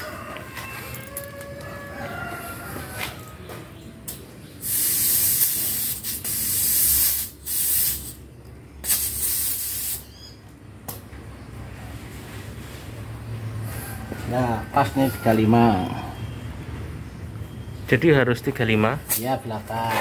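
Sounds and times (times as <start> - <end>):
compressed air hissing: 4.6 - 10.1.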